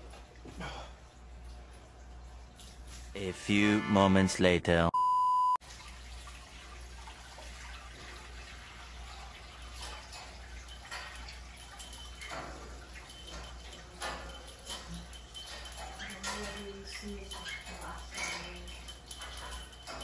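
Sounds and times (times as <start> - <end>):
water splashes and drips: 0.0 - 3.2, 5.6 - 14.8
short beep: 5.0 - 5.6
water poured into aquarium: 5.6 - 9.6
low steady hum: 6.1 - 20.0.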